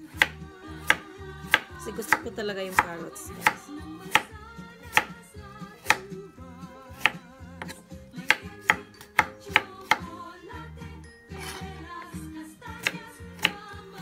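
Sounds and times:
knife chopping on wooden board: 0:00.0 - 0:06.2, 0:06.9 - 0:10.2, 0:12.7 - 0:13.6
background music with singing: 0:00.0 - 0:14.0.

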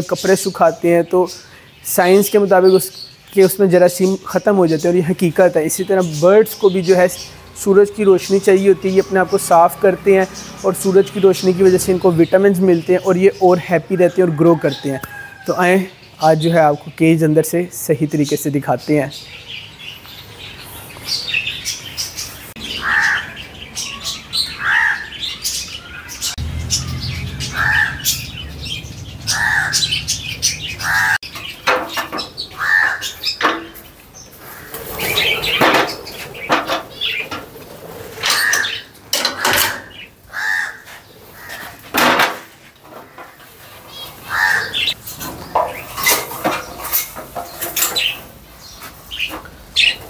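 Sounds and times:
parrots squawking: 0:21.2 - 0:33.5, 0:34.4 - 0:41.8, 0:43.9 - 0:45.0
rustling clatter in cage: 0:45.0 - 0:50.0.

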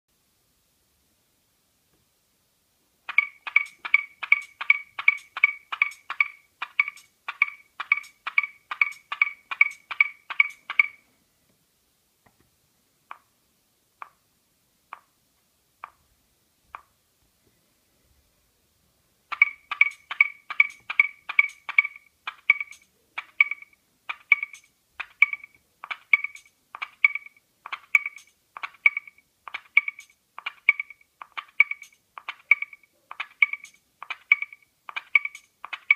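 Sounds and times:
drum machine clicky pattern: 0:03.1 - 0:11.0, 0:19.3 - 0:35.9.

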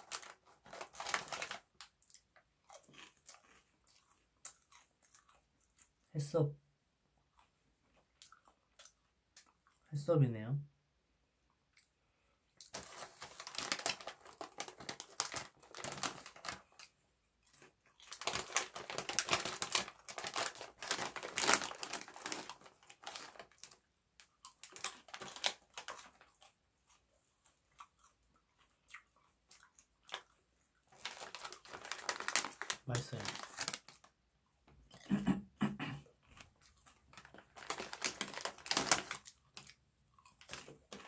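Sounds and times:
plastic snack bag crinkling: 0:00.0 - 0:05.9, 0:12.6 - 0:28.1, 0:28.9 - 0:34.2, 0:36.2 - 0:41.0.

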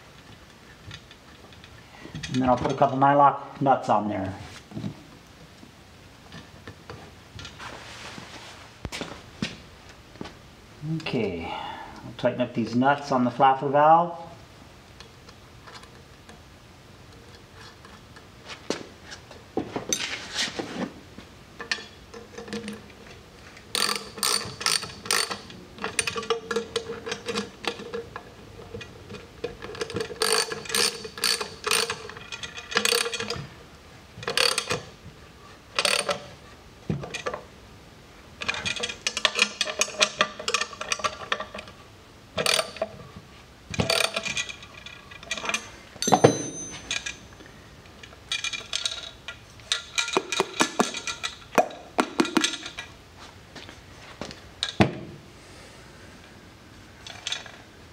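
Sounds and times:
ratchet wrench clicking: 0:23.7 - 0:26.6, 0:29.8 - 0:33.3, 0:34.3 - 0:34.8.

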